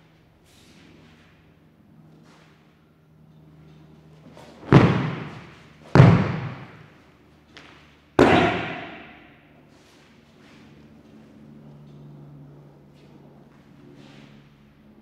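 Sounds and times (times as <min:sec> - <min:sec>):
bodies slapping mats: 0:04.3 - 0:06.9, 0:07.6 - 0:09.2.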